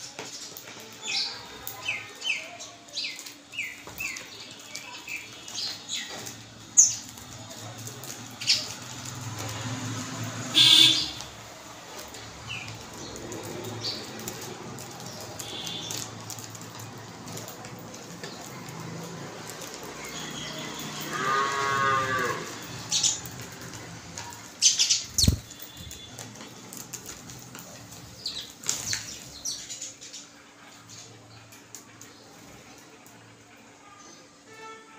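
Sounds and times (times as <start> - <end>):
sparrows chirping: 0.0 - 33.4
cow mooing: 21.0 - 22.6
wings fluttering: 22.7 - 29.8.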